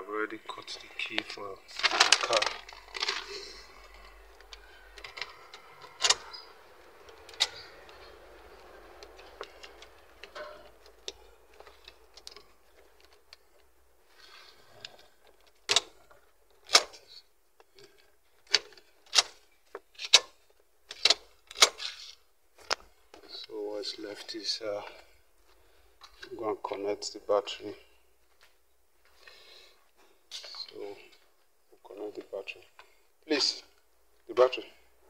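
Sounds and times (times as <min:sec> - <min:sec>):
sharp lock clicks: 0:05.2 - 0:06.5, 0:16.6 - 0:17.0, 0:18.5 - 0:19.4, 0:20.0 - 0:21.9.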